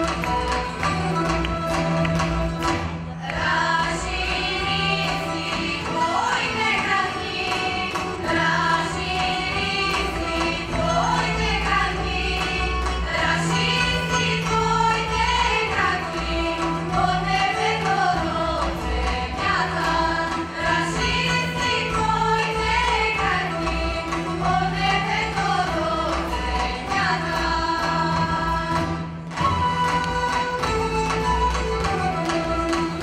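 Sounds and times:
women singing in harmony: 0:03.2 - 0:29.6.

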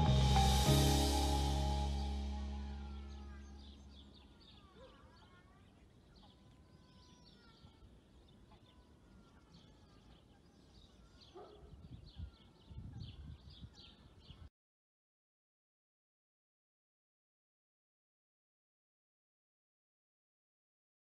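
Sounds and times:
low rumbles: 0:00.0 - 0:04.4
small birds chirping: 0:02.6 - 0:14.5.

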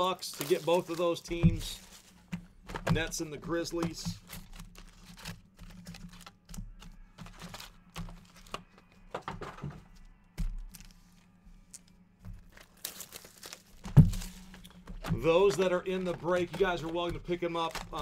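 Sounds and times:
light crinkling: 0:00.0 - 0:09.0, 0:10.6 - 0:18.0
handling taps and clicks: 0:01.3 - 0:09.3, 0:13.8 - 0:18.0.

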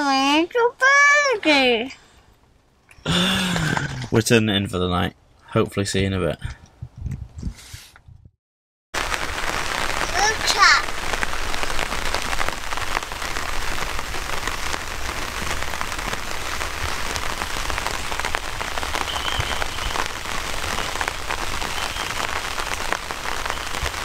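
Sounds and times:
steady rain falling: 0:03.0 - 0:04.2, 0:09.0 - 0:24.0.

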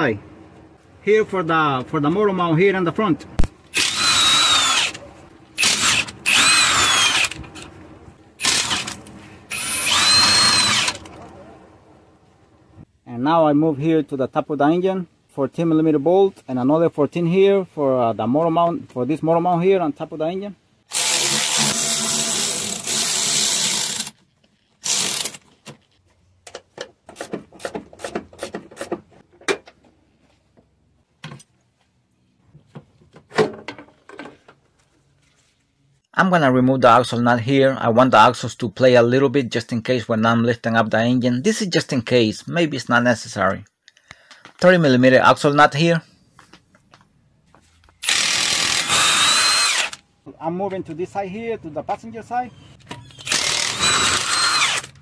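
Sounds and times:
power tool whirring: 0:03.7 - 0:07.7, 0:08.4 - 0:11.2, 0:20.9 - 0:24.2, 0:24.8 - 0:25.4, 0:48.0 - 0:50.0, 0:53.0 - 0:55.0
cordless electric ratchet running: 0:03.8 - 0:05.0, 0:05.6 - 0:07.4, 0:08.4 - 0:11.1, 0:20.9 - 0:24.1, 0:24.8 - 0:25.4, 0:48.0 - 0:50.0, 0:53.2 - 0:55.0.

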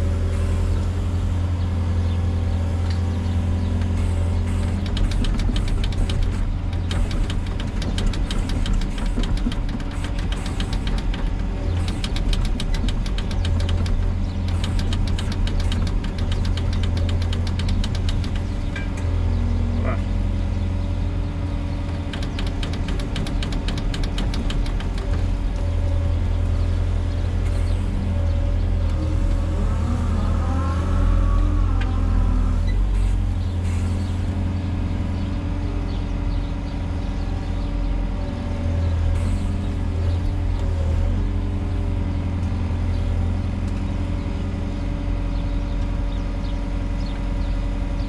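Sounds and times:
diesel engine humming: 0:00.0 - 0:48.0
fast ticking rattle: 0:04.5 - 0:18.9, 0:21.9 - 0:25.4.

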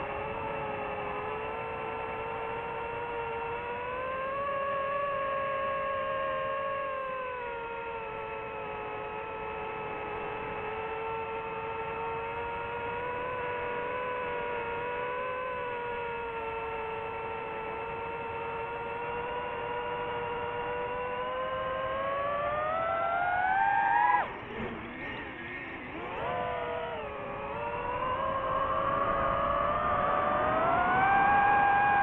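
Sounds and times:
drone propellers whining: 0:00.0 - 0:32.0.

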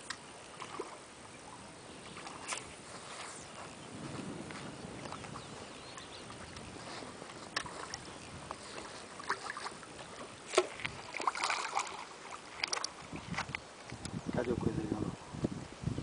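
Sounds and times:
fish splashing in water: 0:00.0 - 0:01.1, 0:05.0 - 0:13.5
steady outdoor hiss: 0:00.0 - 0:16.0.

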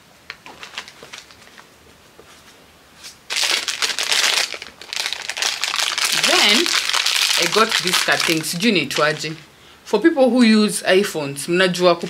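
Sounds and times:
packaging crinkling and rustling: 0:00.3 - 0:09.4.

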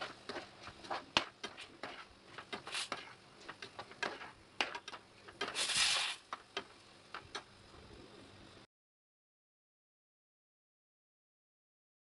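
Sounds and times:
metal spatula scraping pot: 0:00.0 - 0:06.2.

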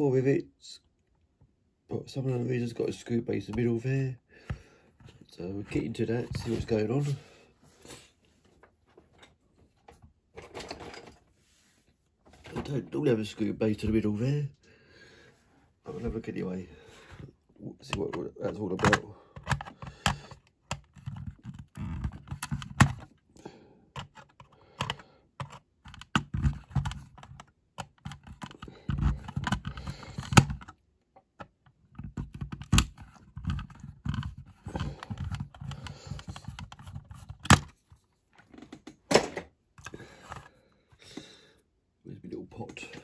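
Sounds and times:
small clicks and scrapes: 0:23.9 - 0:39.0.

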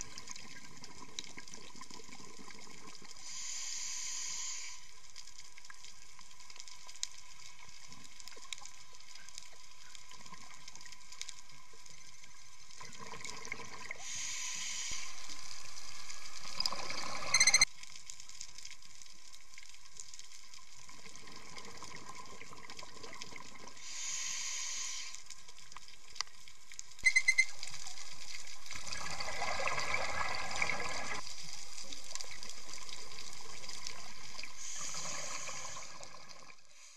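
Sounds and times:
exhaled air bubbling: 0:00.0 - 0:03.4, 0:12.7 - 0:17.7, 0:20.8 - 0:25.6, 0:27.0 - 0:31.2, 0:31.9 - 0:36.7
regulator hissing inhalations: 0:03.2 - 0:04.9, 0:14.0 - 0:15.4, 0:23.8 - 0:25.3, 0:34.6 - 0:36.0.

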